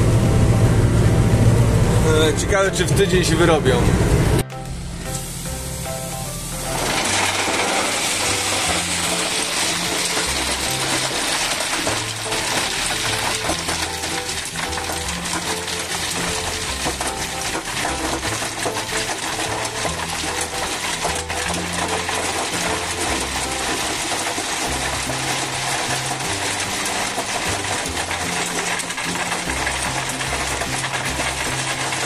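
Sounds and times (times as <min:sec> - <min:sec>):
compaction roller rattling: 0:06.7 - 0:32.0.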